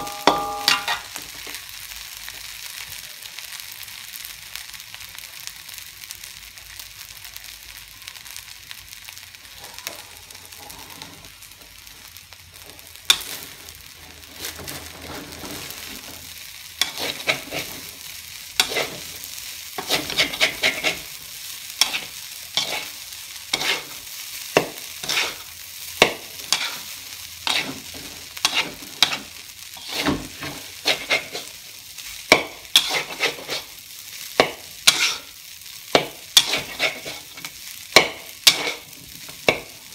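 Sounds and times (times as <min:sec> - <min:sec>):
metal spatula scraping a wok: 0:00.0 - 0:01.2, 0:09.5 - 0:11.9, 0:12.8 - 0:31.6, 0:32.3 - 0:33.8, 0:34.4 - 0:39.8
rice sizzling in a wok: 0:00.0 - 0:39.9.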